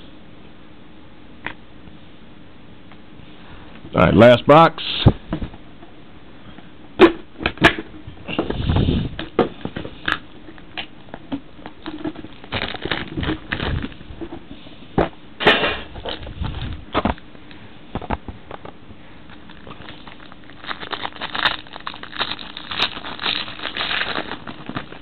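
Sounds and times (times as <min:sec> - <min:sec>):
plastic wrapper crinkling: 0:11.7 - 0:14.0, 0:19.3 - 0:25.0.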